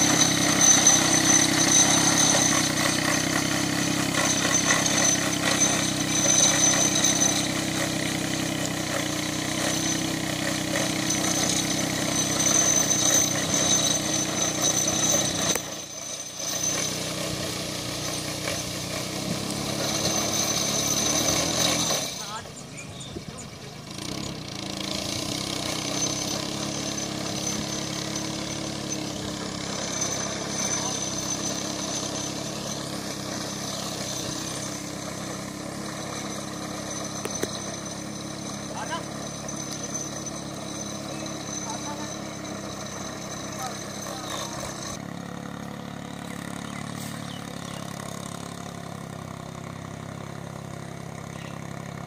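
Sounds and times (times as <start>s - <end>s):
tractor engine running: 0.0s - 52.0s
steady high whine: 26.2s - 45.0s.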